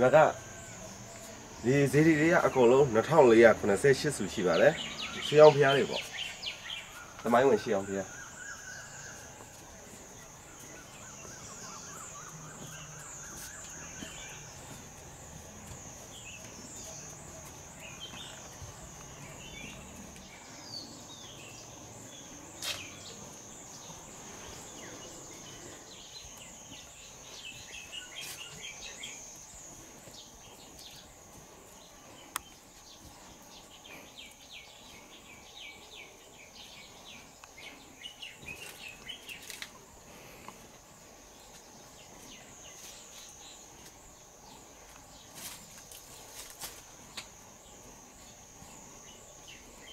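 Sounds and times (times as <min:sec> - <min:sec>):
bird chirps: 0:00.0 - 0:39.7
pulsing insect drone: 0:00.0 - 0:49.9.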